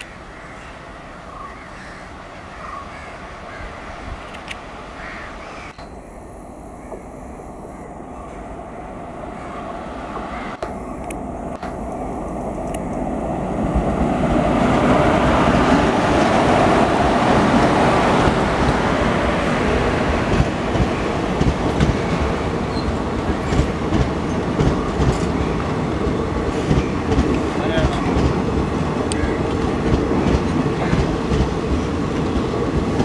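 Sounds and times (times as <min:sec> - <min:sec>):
train wheels rumbling on rail: 0:05.7 - 0:33.0
wheels clicking over rail joints: 0:10.2 - 0:33.0.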